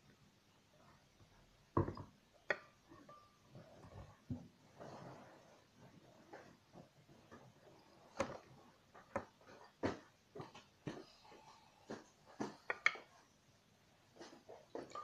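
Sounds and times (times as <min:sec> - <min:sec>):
glass clicks and taps: 0:01.8 - 0:03.4, 0:12.7 - 0:13.1.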